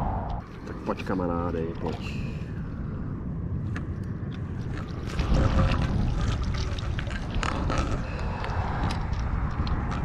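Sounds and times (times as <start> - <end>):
wind rumbling on microphone: 0.0 - 10.0
fish splashing in water: 4.7 - 8.4.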